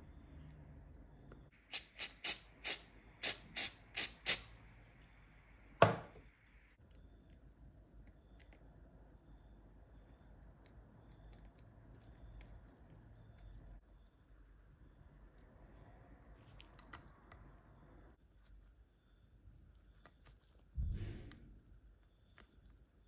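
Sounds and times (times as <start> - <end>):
aerosol spray puffs: 1.6 - 4.6.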